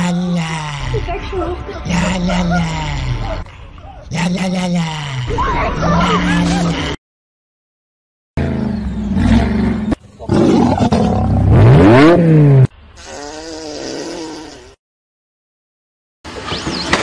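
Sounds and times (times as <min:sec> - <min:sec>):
lion roaring: 0:09.1 - 0:12.6.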